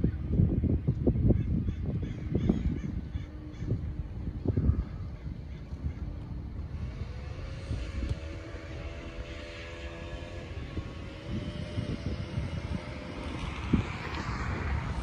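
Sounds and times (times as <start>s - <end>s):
airplane engine droning overhead: 0.0s - 15.0s
low wind rumble: 0.0s - 15.0s.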